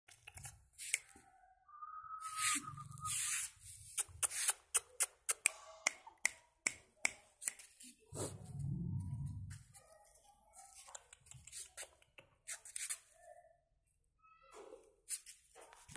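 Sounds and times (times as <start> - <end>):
hiss with whistling tone: 2.0 - 3.5
sharp finger snaps or clicks: 4.0 - 7.7.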